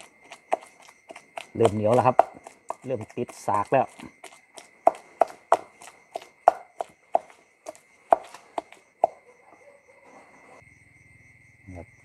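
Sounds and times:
pestle pounding in stone mortar: 0:00.0 - 0:09.2.

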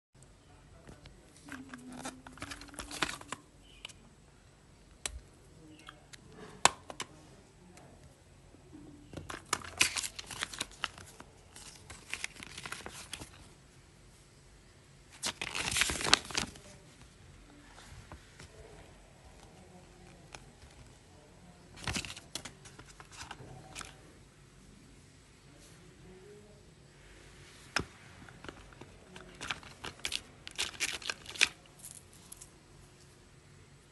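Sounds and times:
paper and plastic crinkling: 0:01.0 - 0:03.9, 0:09.2 - 0:13.5, 0:15.1 - 0:18.6, 0:21.7 - 0:24.0, 0:28.2 - 0:32.5
paper leaflet rustling: 0:01.4 - 0:03.8, 0:09.3 - 0:13.4, 0:15.2 - 0:17.0, 0:28.2 - 0:32.4.

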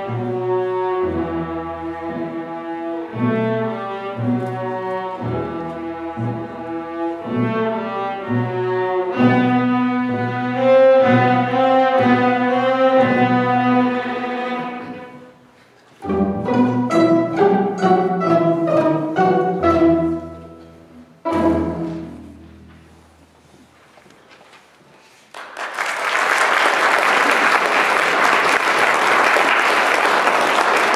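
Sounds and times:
string orchestra playing: 0:00.0 - 0:23.3.

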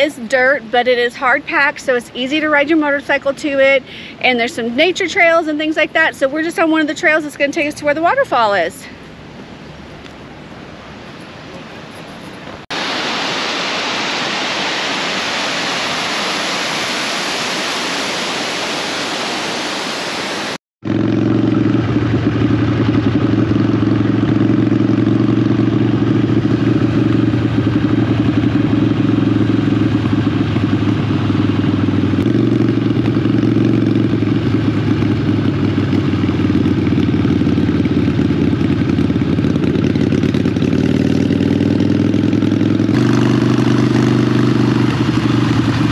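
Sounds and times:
waterfall rushing: 0:12.7 - 0:20.6
motorcycle engine running: 0:20.8 - 0:45.9.

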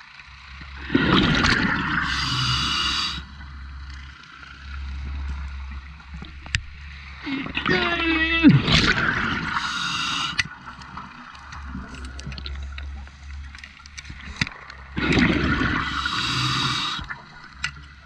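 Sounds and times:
regulator hissing and bubbling: 0:00.8 - 0:03.6, 0:08.6 - 0:10.6, 0:15.0 - 0:17.4.

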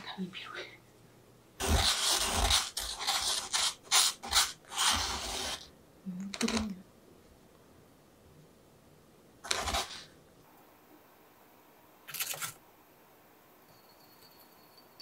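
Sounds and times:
spoon scraping sugar: 0:01.6 - 0:05.7.

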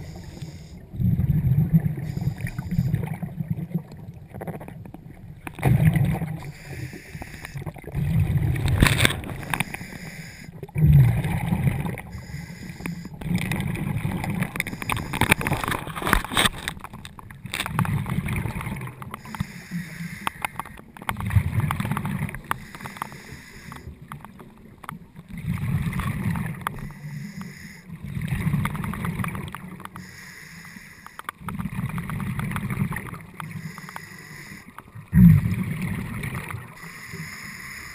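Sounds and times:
diver breathing underwater: 0:00.0 - 0:03.3, 0:05.8 - 0:15.7, 0:19.2 - 0:20.8, 0:22.2 - 0:24.0, 0:26.8 - 0:27.9, 0:30.0 - 0:31.3, 0:33.4 - 0:35.8, 0:36.7 - 0:37.9
regulator bubbles rumbling: 0:00.0 - 0:06.6, 0:07.3 - 0:09.8, 0:10.5 - 0:12.4, 0:13.0 - 0:19.4, 0:20.5 - 0:22.7, 0:23.8 - 0:27.0, 0:27.9 - 0:30.0, 0:31.4 - 0:33.7, 0:34.8 - 0:36.9
scattered crackles: 0:00.0 - 0:37.9.

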